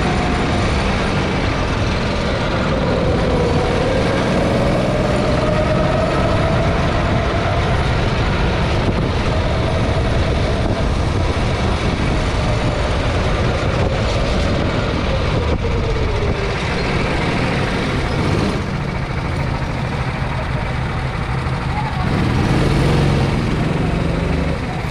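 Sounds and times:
wind rumble on microphone: 0:00.0 - 0:19.2
go-kart engine running: 0:00.0 - 0:24.9.

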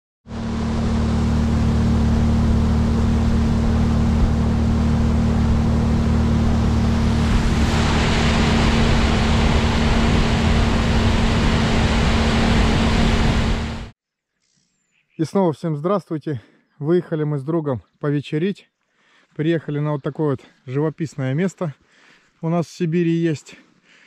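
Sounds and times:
outboard motor running: 0:00.2 - 0:13.9
water rushing along hull: 0:00.3 - 0:13.9.

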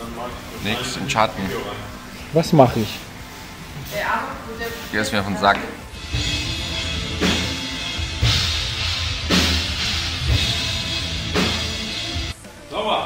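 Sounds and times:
heavy rock music: 0:05.5 - 0:12.4.

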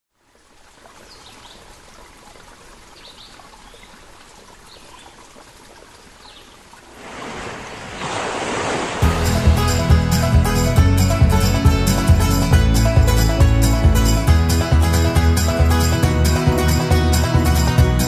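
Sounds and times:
running water rushing: 0:00.1 - 0:18.0
wave breaking on beach: 0:06.9 - 0:09.1.

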